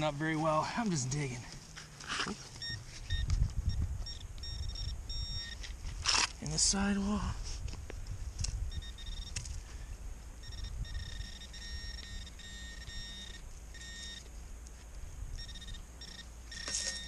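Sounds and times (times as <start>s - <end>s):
metal detector beeping: 2.5s - 5.8s, 8.7s - 9.5s, 10.4s - 14.3s, 15.3s - 17.0s.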